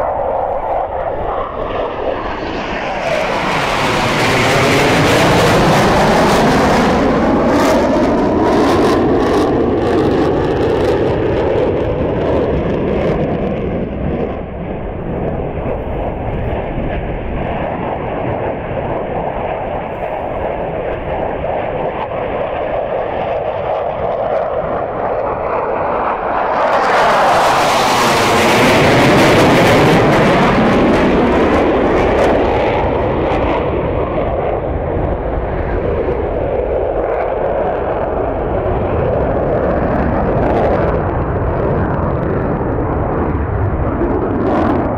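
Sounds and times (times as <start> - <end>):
fighter jets flying past: 0.0 - 44.9.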